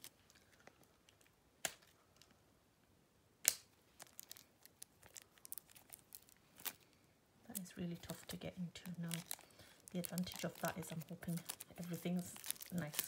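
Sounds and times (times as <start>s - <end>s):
plastic packaging snapping: 3.4s - 6.9s, 7.5s - 13.0s.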